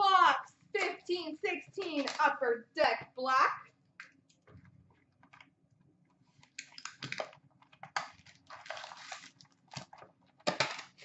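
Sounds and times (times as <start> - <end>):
plastic wrap and cardboard tearing: 8.0 - 11.0.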